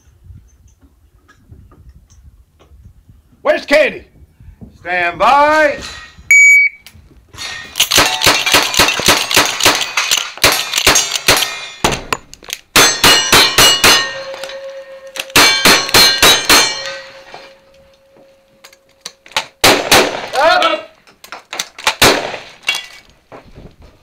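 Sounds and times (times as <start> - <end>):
bullets clanging on steel targets: 7.4 - 20.6
rifle shots: 7.8 - 14.2, 15.2 - 16.9, 19.4 - 20.5, 21.8 - 22.6.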